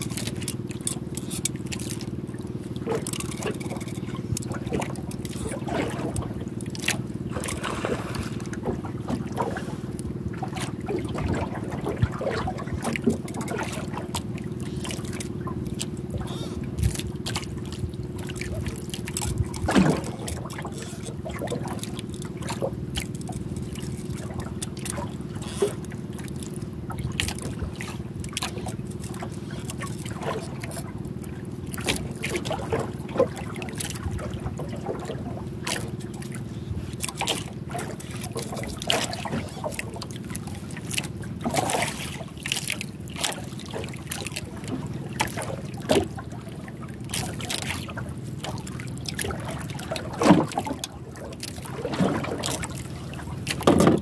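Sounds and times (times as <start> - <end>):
low engine hum: 0.0 - 54.0
water lapping against hull: 0.0 - 54.0.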